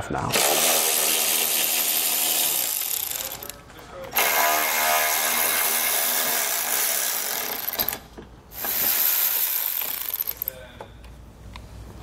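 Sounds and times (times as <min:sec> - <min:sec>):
electric ratchet motor whir: 0:00.4 - 0:03.5.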